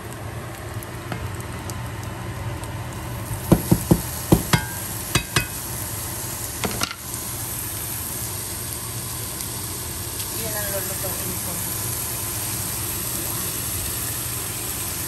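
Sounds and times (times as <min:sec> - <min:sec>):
ham sizzling in frying pan: 0:00.0 - 0:15.0
taps and clatter against pan: 0:03.5 - 0:05.6.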